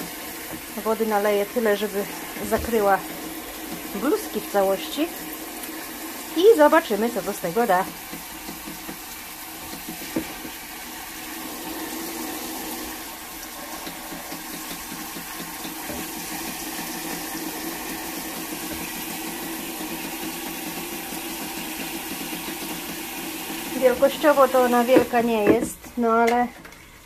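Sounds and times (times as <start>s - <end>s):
water pouring into washing machine: 0.0s - 25.5s.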